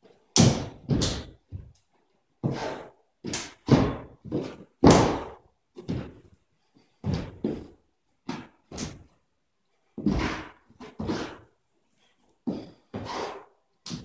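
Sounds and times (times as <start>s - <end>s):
stamping footwork thuds: 0.4s - 1.7s, 3.3s - 6.2s, 7.0s - 7.7s, 10.0s - 11.4s.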